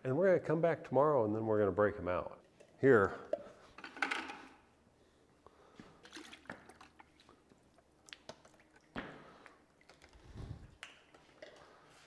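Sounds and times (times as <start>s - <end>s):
plastic cups clicking and tapping: 2.4s - 4.6s, 6.0s - 12.0s.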